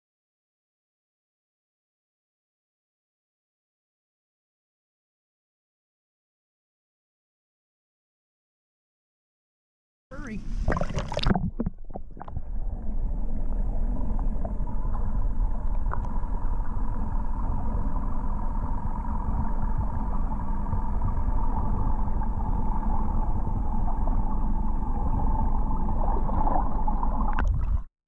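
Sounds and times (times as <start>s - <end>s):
muffled underwater rumble: 10.1s - 27.9s
water splash: 10.4s - 12.4s, 26.0s - 27.9s.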